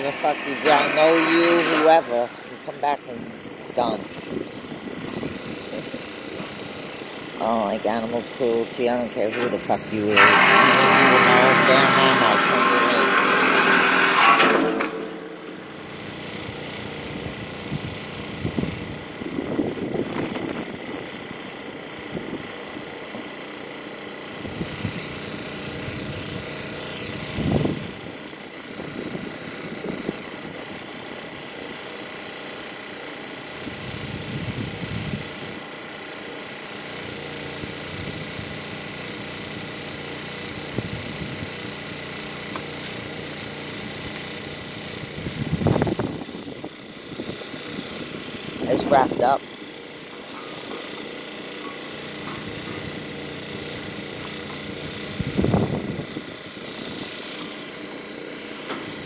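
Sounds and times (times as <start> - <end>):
high whine: 0.0 - 21.1, 42.5 - 57.8
small engine running: 0.0 - 59.0.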